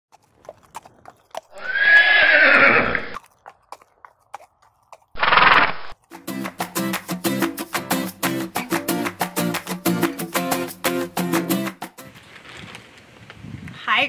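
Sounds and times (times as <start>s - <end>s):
horse whinnying: 1.5s - 3.2s, 5.2s - 5.9s
short noisy burst: 5.2s - 5.9s
plucked guitar music: 6.1s - 12.1s.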